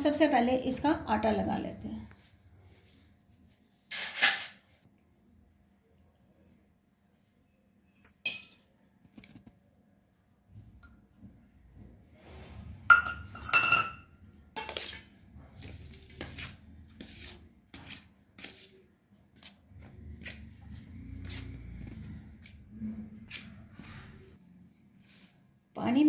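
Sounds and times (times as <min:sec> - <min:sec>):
spoon clinking on steel plate: 0:12.9 - 0:14.0.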